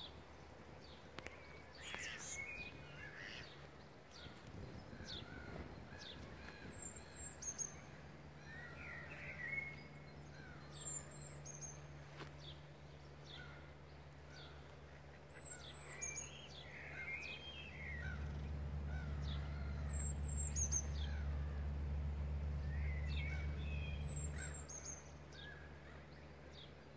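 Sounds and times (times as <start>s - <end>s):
wild birds singing and chirping: 0.0s - 26.9s
low rumble: 16.5s - 26.5s.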